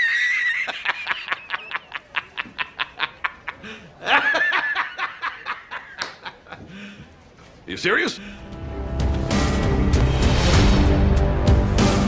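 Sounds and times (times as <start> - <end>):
man laughing hard: 0.0 - 6.7.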